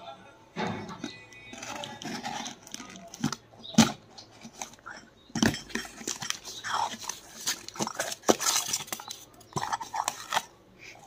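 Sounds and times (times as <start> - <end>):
plastic packaging rustling: 1.0 - 10.5.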